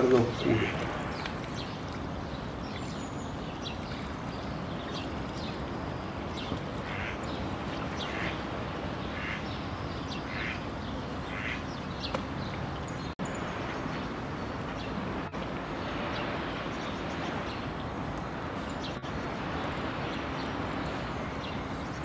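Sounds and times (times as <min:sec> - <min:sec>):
ducks calling: 0:00.0 - 0:01.8, 0:06.6 - 0:12.2.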